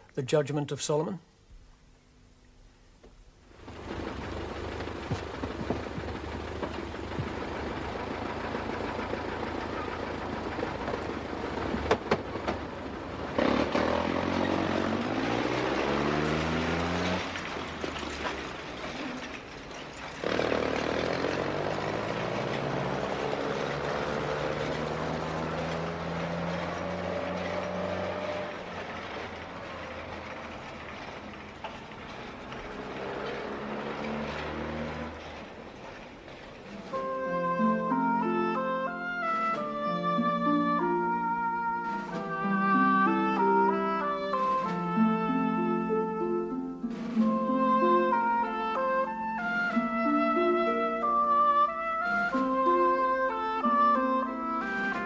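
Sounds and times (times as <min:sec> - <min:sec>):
truck engine accelerating: 0:03.5 - 0:55.0.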